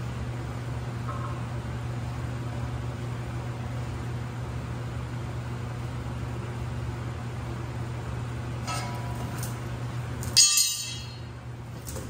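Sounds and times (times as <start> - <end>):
steady low hum: 0.0 - 12.0
metal tool clanging on steel: 8.6 - 9.4, 10.3 - 11.3.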